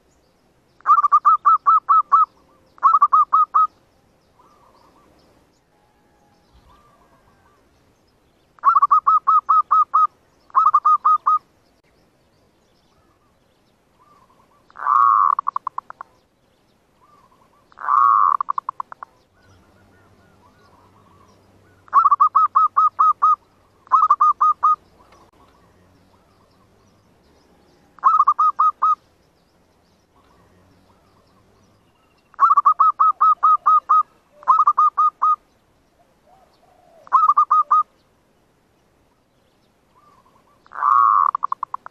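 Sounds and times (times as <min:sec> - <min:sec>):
dove cooing: 0:00.8 - 0:03.8, 0:04.4 - 0:05.2, 0:05.8 - 0:07.6, 0:08.6 - 0:11.4, 0:14.0 - 0:16.2, 0:17.0 - 0:29.0, 0:30.2 - 0:35.4, 0:36.0 - 0:37.9, 0:40.0 - 0:41.9.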